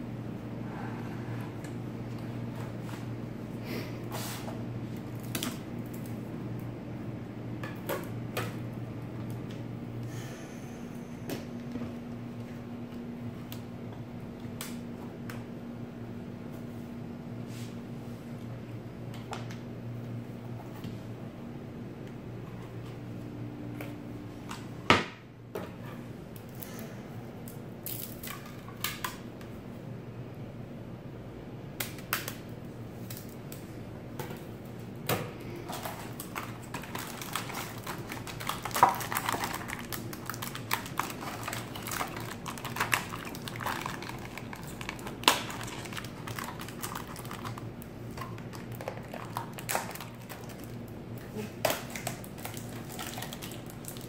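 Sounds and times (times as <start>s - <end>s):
plastic bag crinkling: 35.7s - 50.9s, 51.8s - 54.0s.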